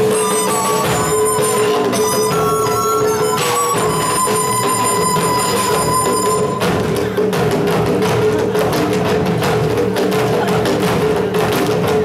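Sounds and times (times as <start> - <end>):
held melody line: 0.0 - 7.0
drums struck: 0.0 - 12.0.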